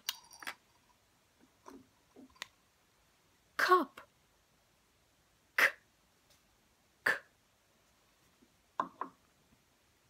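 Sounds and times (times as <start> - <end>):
woman saying k sound: 3.6 - 4.1
faint mouth sound: 5.6 - 5.9, 7.0 - 7.4.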